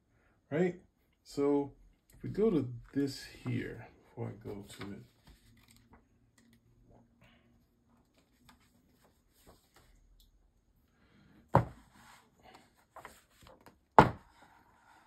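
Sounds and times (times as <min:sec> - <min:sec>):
paper pages rustling: 0:04.4 - 0:06.6, 0:08.0 - 0:10.0, 0:12.0 - 0:13.8.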